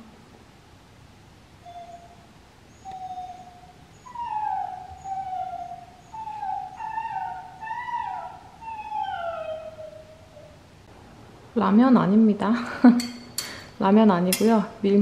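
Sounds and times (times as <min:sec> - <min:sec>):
dog whimpering through phone speaker: 0:03.0 - 0:10.6.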